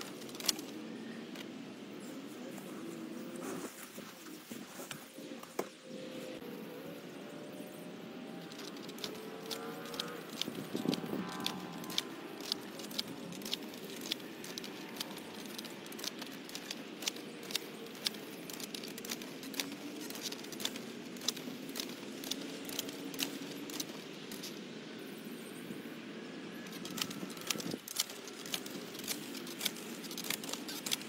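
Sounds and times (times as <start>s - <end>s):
wheel hoe clicking and rattling: 8.4s - 24.5s, 26.8s - 31.0s.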